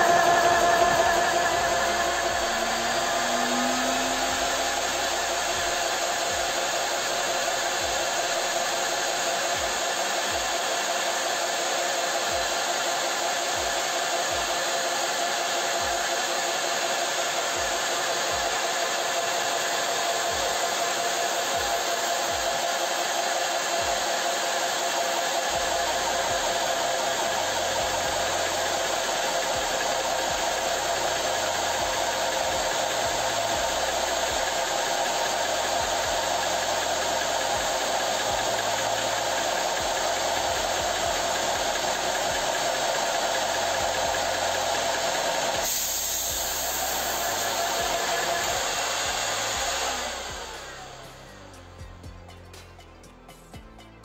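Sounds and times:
air bleeding from drain: 0.0 - 8.6, 25.5 - 51.0
air compressor running: 0.0 - 51.8.

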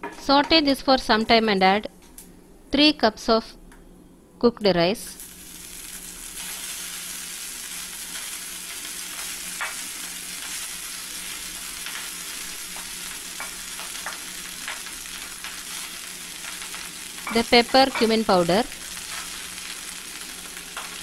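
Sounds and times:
ghee sizzling in a pan: 5.2 - 21.0.

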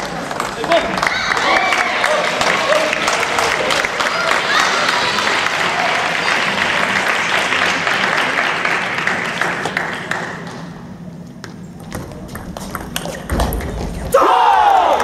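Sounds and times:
applause in a large hall: 0.0 - 10.7.

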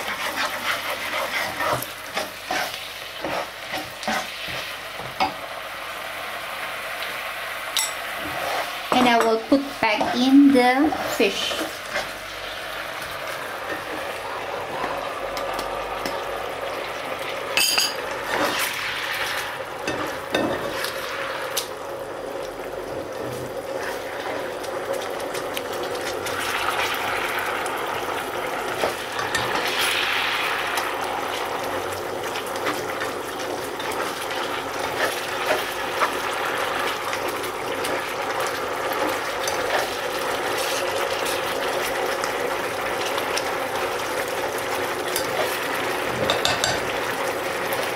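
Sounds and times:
spatula scraping and tapping pan: 0.0 - 5.4, 45.1 - 46.9
sauce bubbling in a frying pan: 0.0 - 47.9.

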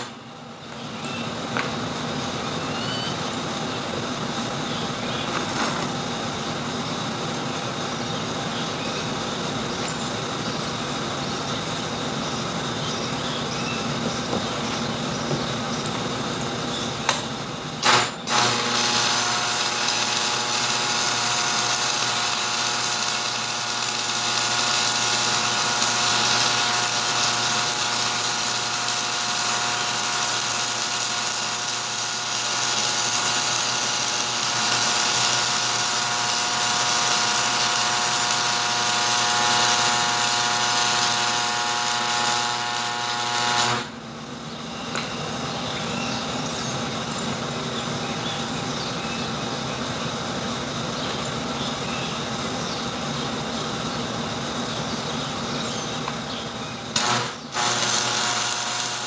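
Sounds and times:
welding arc sizzling: 0.0 - 45.5, 56.0 - 59.0
welding arc cracking: 3.0 - 6.2, 15.8 - 44.0, 56.9 - 59.0.

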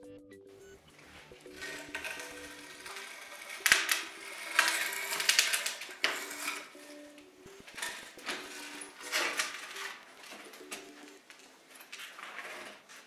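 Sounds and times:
wooden door frame cracking and scraping: 1.6 - 6.7, 7.7 - 10.9, 11.8 - 13.0.

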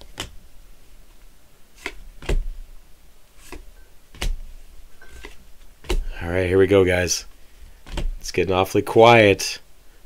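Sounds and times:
trading cards snapping: 0.0 - 0.4, 1.8 - 2.6, 3.4 - 6.2, 7.8 - 8.2.

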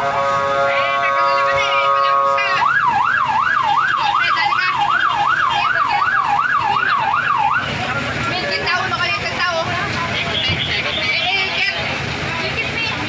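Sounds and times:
held horn-like tone: 0.0 - 2.6
ambulance siren yelping: 0.0 - 9.3.

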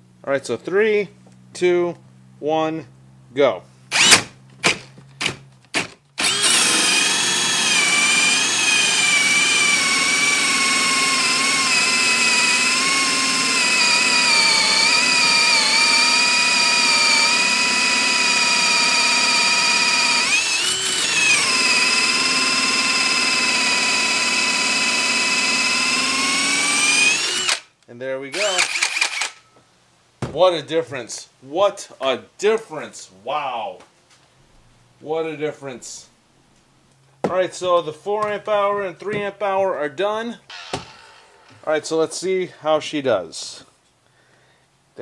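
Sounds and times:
drill whining cutting wood: 3.9 - 4.3, 5.2 - 27.7, 28.3 - 29.5, 40.5 - 41.6.

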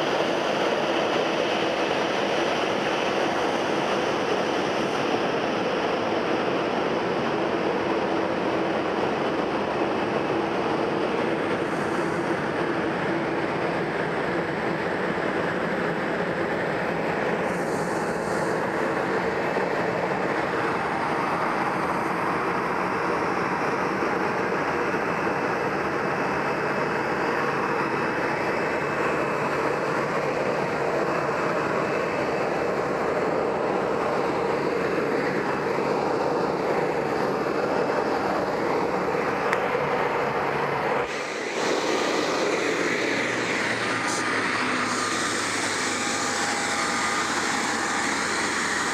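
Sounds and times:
jet engines idling: 0.0 - 48.9
high whine: 16.3 - 48.9.

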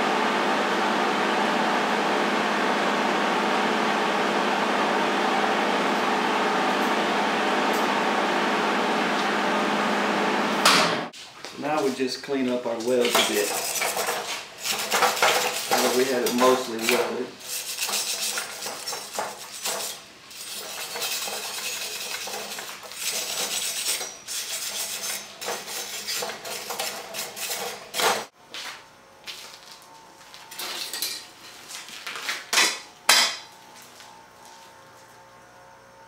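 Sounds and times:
wire brush scrubbing metal: 12.8 - 28.3
metal scraping: 12.9 - 28.3.

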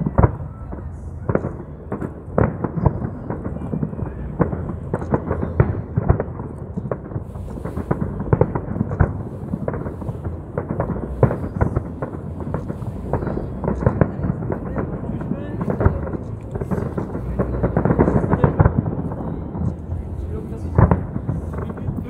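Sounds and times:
fireworks bursting: 0.0 - 22.0
low rumble: 0.0 - 22.0.

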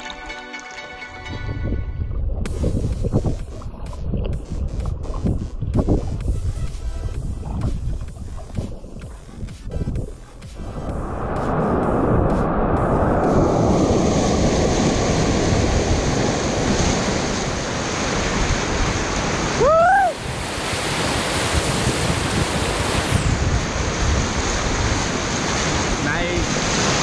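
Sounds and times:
rapids roaring: 8.5 - 27.0
person shouting: 19.6 - 20.2.

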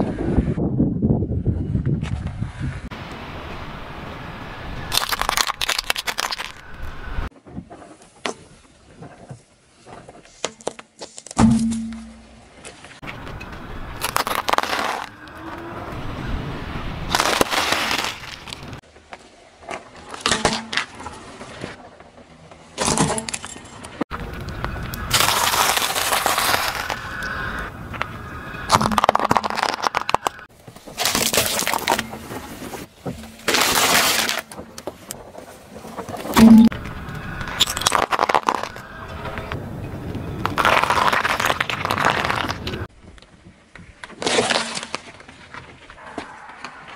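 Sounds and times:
candy canes crunching under tyre: 4.9 - 6.8, 14.0 - 15.3, 17.1 - 18.8, 25.0 - 27.5, 28.7 - 32.4, 33.3 - 34.9, 37.4 - 39.0, 40.4 - 42.9
tyre crushing objects on asphalt: 14.0 - 15.6, 17.1 - 18.8, 24.6 - 27.2, 28.7 - 36.8, 37.6 - 39.0, 40.4 - 42.9.

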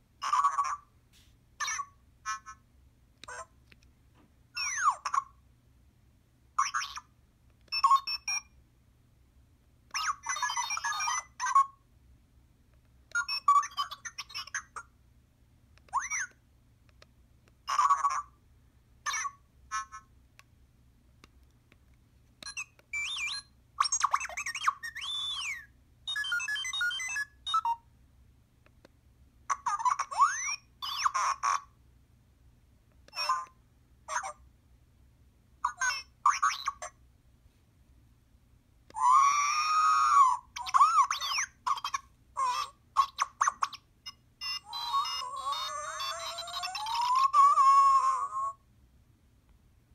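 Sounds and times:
robot beeps and whistles: 22.4 - 27.8.

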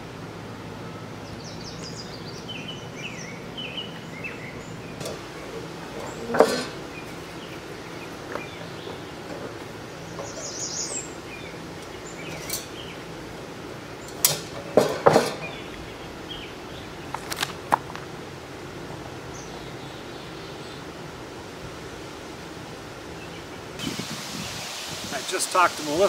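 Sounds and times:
outdoor background noise: 0.0 - 26.0
bird chirping: 1.2 - 13.1
metal parts knocking and clanking: 5.9 - 6.8.

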